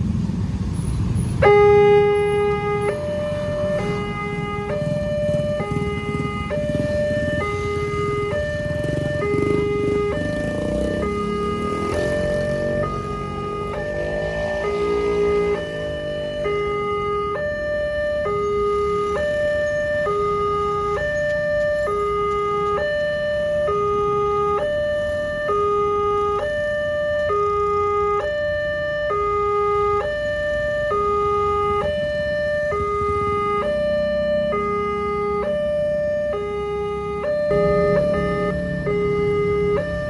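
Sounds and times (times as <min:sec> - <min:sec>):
level crossing two-note alarm: 0:37.2 - 0:39.9.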